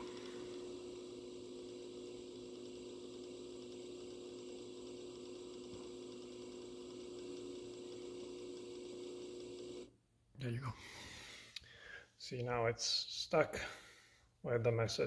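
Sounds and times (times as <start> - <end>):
motor humming slowly: 0.0 - 9.9.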